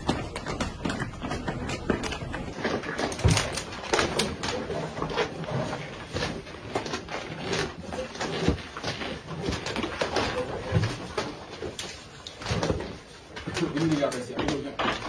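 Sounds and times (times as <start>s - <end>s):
footsteps on hard indoor floor: 0.0s - 4.5s.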